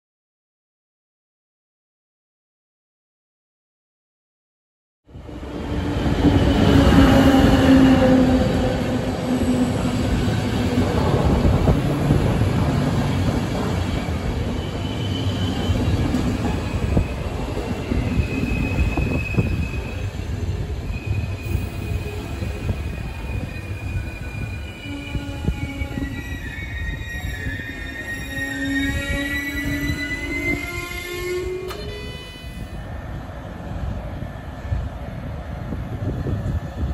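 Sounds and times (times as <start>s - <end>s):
train wheels rumbling on rails: 5.2s - 36.9s
high thin wheel squeals: 20.9s - 32.8s.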